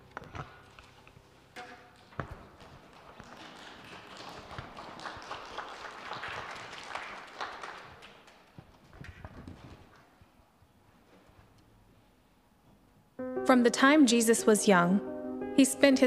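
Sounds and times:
people rustling and shuffling: 0:00.0 - 0:13.1.

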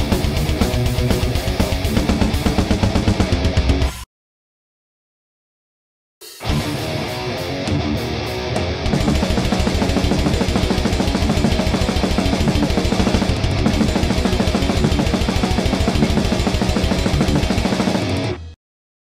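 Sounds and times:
distorted electric guitar riff: 0:00.0 - 0:04.0, 0:06.4 - 0:18.6
drum backing track: 0:00.0 - 0:04.0, 0:08.9 - 0:18.3.

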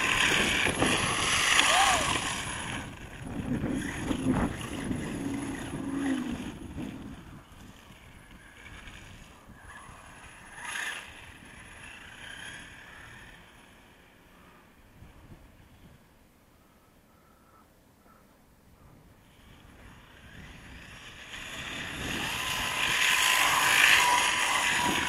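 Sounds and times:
tyre noise on loose dirt: 0:00.0 - 0:14.2, 0:19.4 - 0:25.0
rc truck motor whine: 0:00.0 - 0:16.1, 0:19.2 - 0:25.0.

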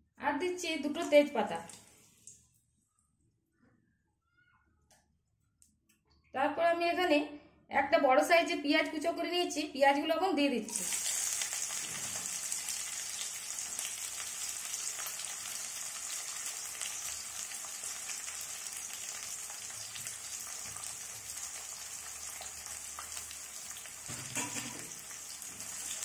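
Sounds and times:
onion sizzling in hot oil: 0:10.7 - 0:26.0.

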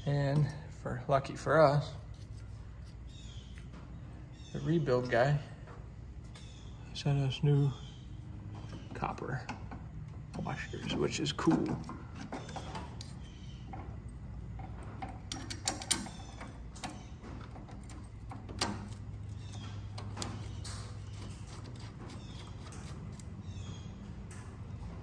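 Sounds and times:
steady low hum: 0:00.0 - 0:25.0
small metal clicks and taps: 0:14.6 - 0:23.3.

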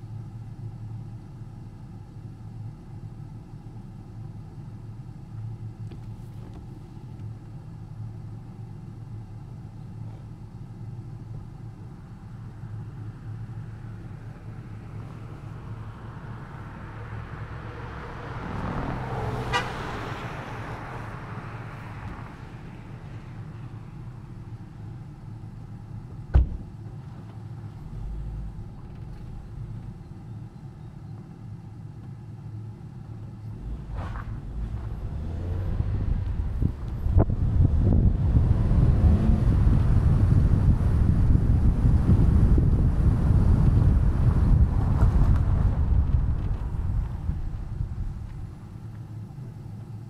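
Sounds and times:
car road and engine rumble: 0:00.0 - 0:50.0
rushing sound: 0:33.6 - 0:39.1.

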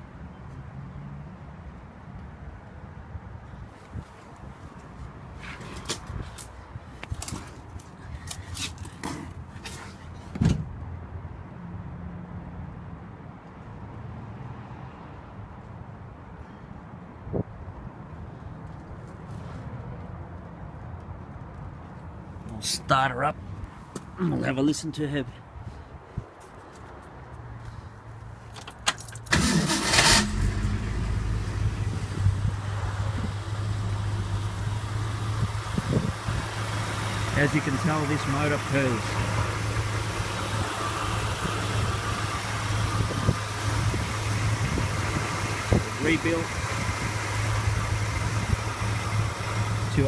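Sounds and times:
car engine starting and idling: 0:28.8 - 0:50.0
low steady rumble: 0:30.2 - 0:50.0.

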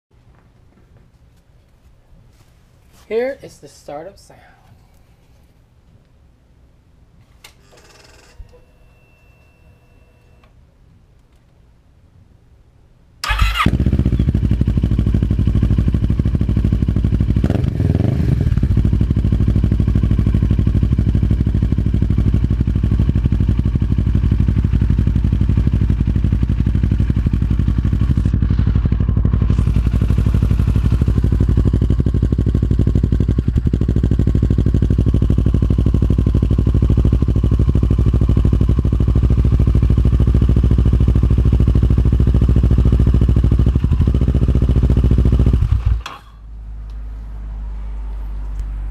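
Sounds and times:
motorcycle engine starting and idling: 0:13.2 - 0:47.1.

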